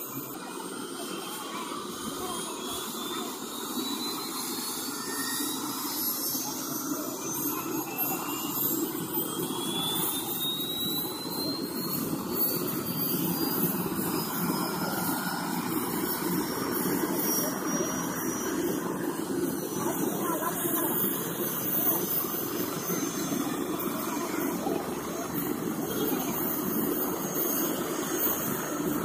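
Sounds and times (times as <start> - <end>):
helicopter turbine whine: 0.0 - 29.0
rushing engine noise: 0.0 - 29.0.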